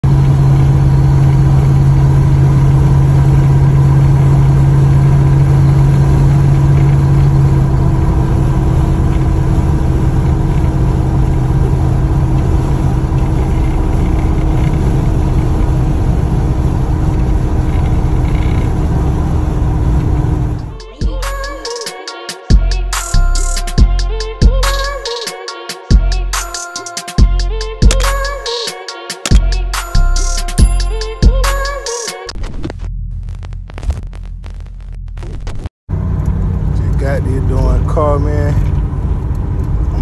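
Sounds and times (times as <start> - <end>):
road rumble: 0.0 - 21.4, 32.3 - 40.0
car engine drone: 0.0 - 21.8, 22.5 - 25.2, 29.4 - 40.0.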